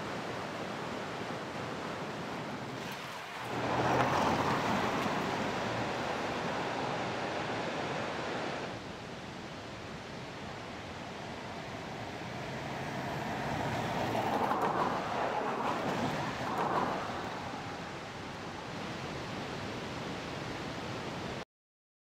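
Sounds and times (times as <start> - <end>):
car driving past: 2.8 - 7.1.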